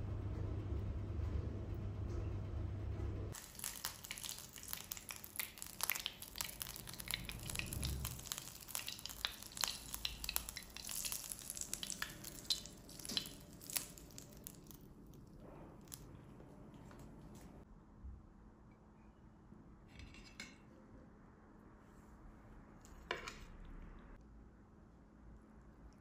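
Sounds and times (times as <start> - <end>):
food sizzling and crackling: 3.3 - 16.0
butter foaming on hot surface: 3.4 - 15.0.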